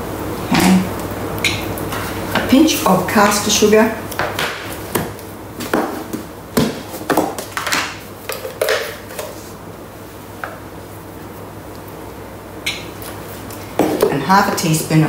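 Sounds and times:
plastic containers knocking and clattering: 4.2 - 9.3.

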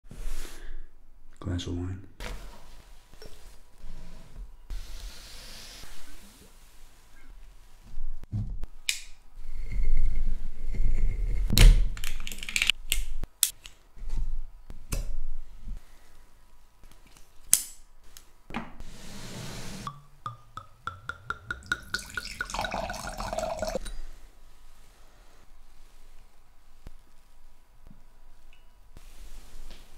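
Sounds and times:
wine glugging into glass: 19.9 - 23.9
cork popping: 19.9 - 24.0.

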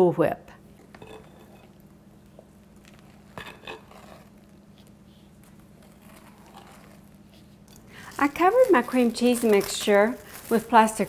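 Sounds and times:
spoon stirring in bowl: 0.9 - 1.9, 2.5 - 9.8.

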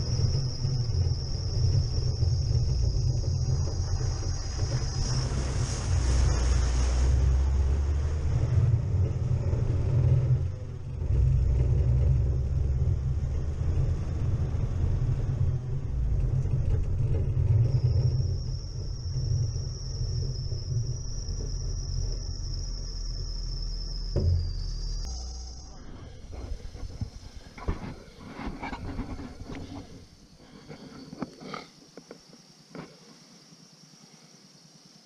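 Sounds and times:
engine and tyres rumbling: 0.0 - 33.0
thin high whine: 17.5 - 31.8
thump: 24.1 - 24.8.

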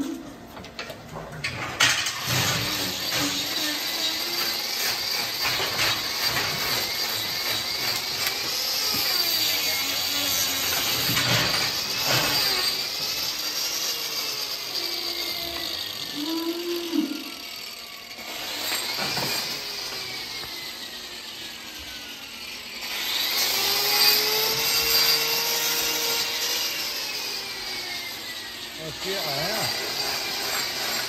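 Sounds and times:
angle grinder grinding hoof: 0.0 - 31.0.

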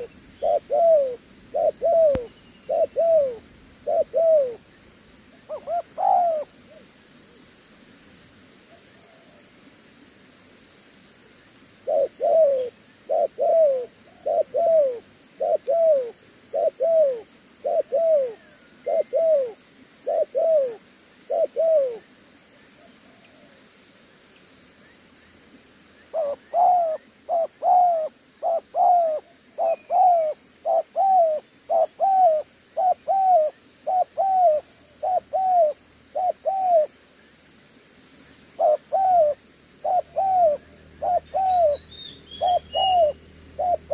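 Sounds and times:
dove cooing: 0.0 - 4.7, 5.3 - 6.9, 11.8 - 22.0, 26.1 - 37.0, 38.6 - 43.9.

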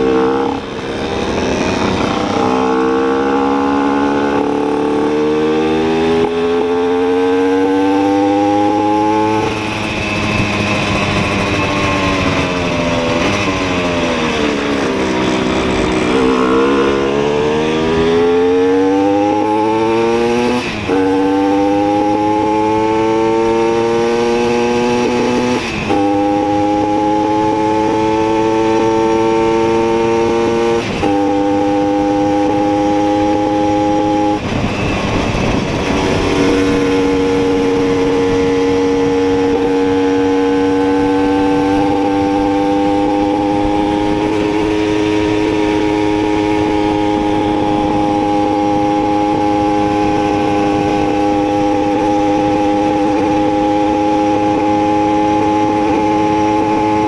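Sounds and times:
two-stroke moped engine: 0.0 - 5.4, 7.6 - 19.7
wind rushing over microphone: 0.0 - 57.0.

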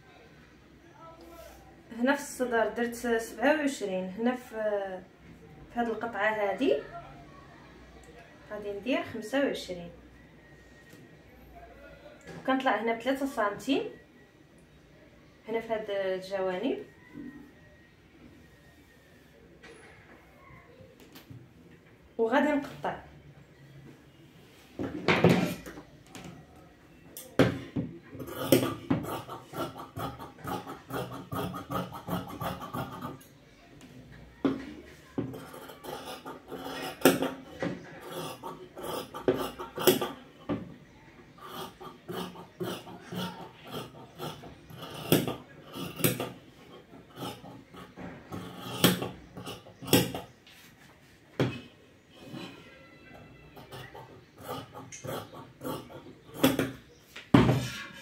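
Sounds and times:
shears cutting fabric: 28.2 - 33.2, 35.3 - 40.2, 41.4 - 46.4, 47.1 - 50.2.

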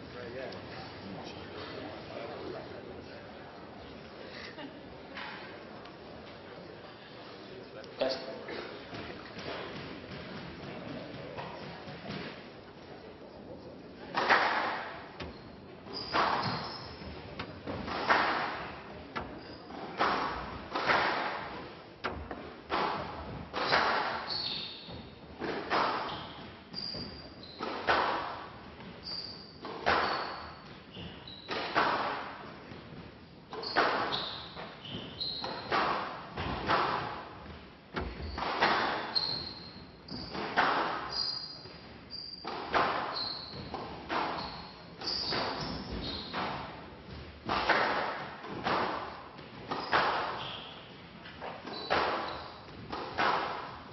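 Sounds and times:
shoes squeaking on floor: 15.2 - 20.5, 22.7 - 31.8, 32.7 - 37.2, 38.0 - 46.8, 48.6 - 53.6
squash ball hits echoing: 15.9 - 28.6, 33.5 - 39.5, 40.1 - 41.2, 42.4 - 53.9.

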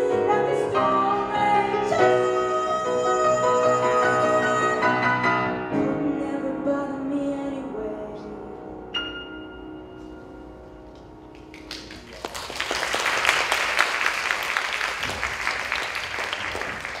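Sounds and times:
grand piano notes: 0.0 - 12.1
audience applauding: 11.3 - 17.0.

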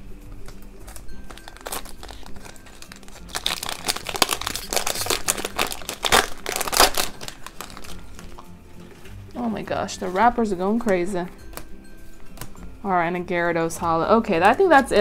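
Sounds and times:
foil wrapper crinkling: 0.4 - 9.0.

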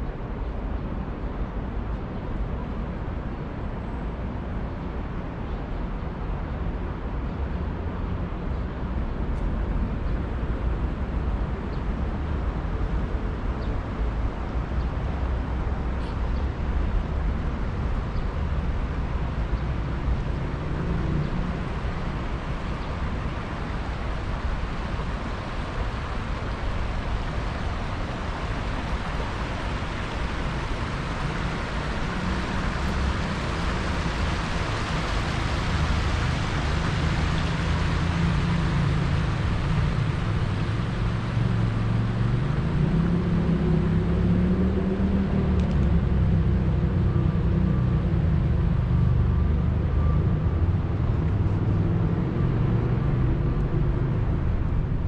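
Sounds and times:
low traffic rumble: 0.0 - 55.0
broad street hiss: 11.1 - 46.7.

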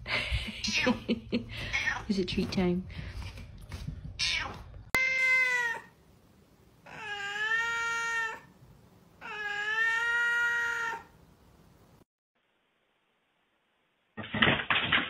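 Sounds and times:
cat meowing: 4.2 - 5.9, 6.9 - 8.5, 9.2 - 11.1.

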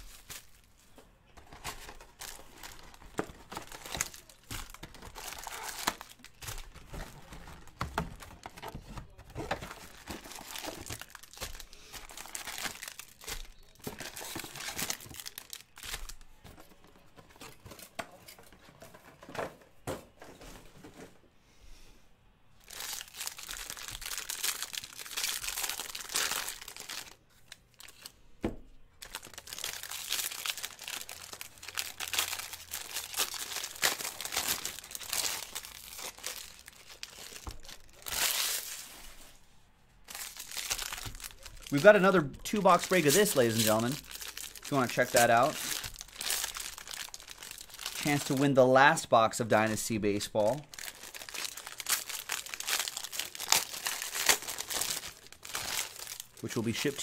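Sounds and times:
foil wrappers tearing and crinkling: 1.4 - 16.2, 22.6 - 28.1, 29.0 - 39.3, 40.1 - 48.6, 50.6 - 57.0.

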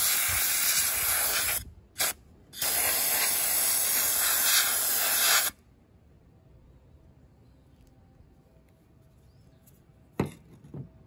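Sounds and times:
air blast gun spraying: 0.0 - 5.6.

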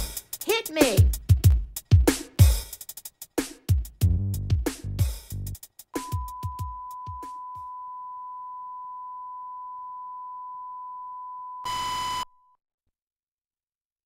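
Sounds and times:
hip-hop drum hits: 0.0 - 7.3.

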